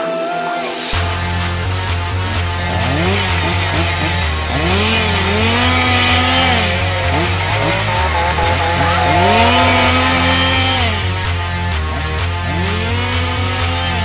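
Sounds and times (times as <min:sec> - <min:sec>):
electronic music with bass beat: 0:00.8 - 0:14.0
chainsaw revving: 0:01.0 - 0:11.4.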